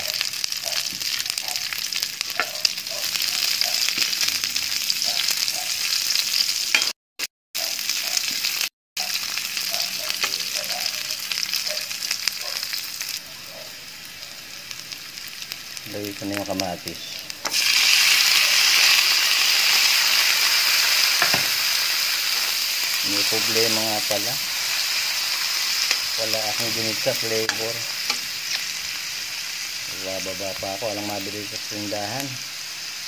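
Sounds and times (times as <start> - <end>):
onions sizzling in hot oil: 0.0 - 6.9, 7.6 - 33.0
metal spatula scraping wok: 26.8 - 28.8.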